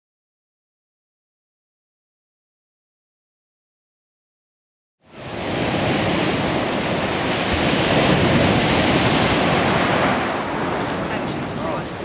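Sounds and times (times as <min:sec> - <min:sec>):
waves crashing on shingle beach: 0:05.1 - 0:12.0.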